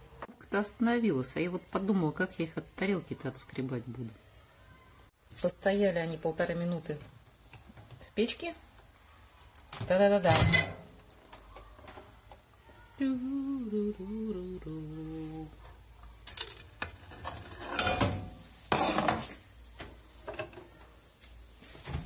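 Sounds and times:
woman humming: 13.0 - 15.6.

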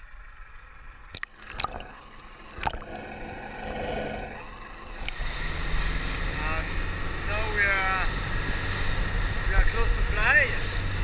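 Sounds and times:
water gurgling and sloshing: 0.0 - 7.5.

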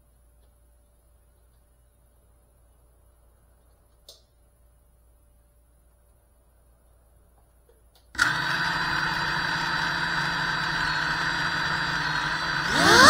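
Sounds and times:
drone motors whining: 8.2 - 13.0.

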